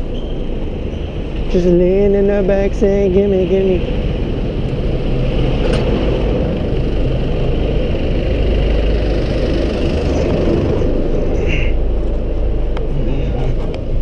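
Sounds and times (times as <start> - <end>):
bus engine alongside: 0.0 - 14.0
traffic engines running: 0.0 - 14.0.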